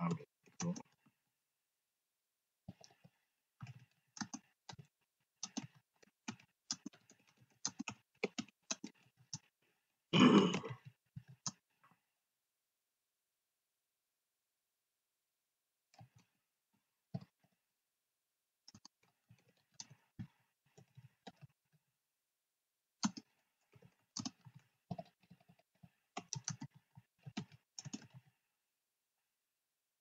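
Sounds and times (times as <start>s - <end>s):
computer keyboard typing: 2.7s - 9.5s, 18.7s - 21.6s, 23.0s - 28.4s.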